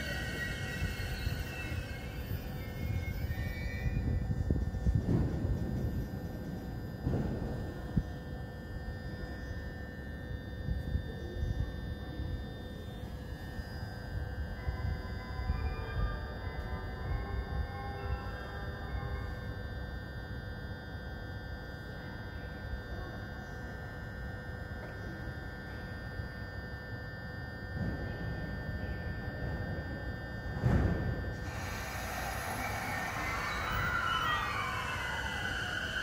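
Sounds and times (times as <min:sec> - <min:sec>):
gliding whining tones: 0:00.0 - 0:06.6, 0:31.4 - 0:36.0
train low rumble with electrical hum: 0:00.0 - 0:36.0
hiss: 0:31.4 - 0:35.0.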